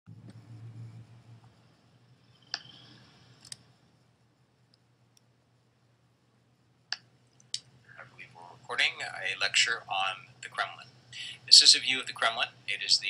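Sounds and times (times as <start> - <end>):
low steady hum: 0.1 - 13.0
faint computer clicks: 2.5 - 2.8.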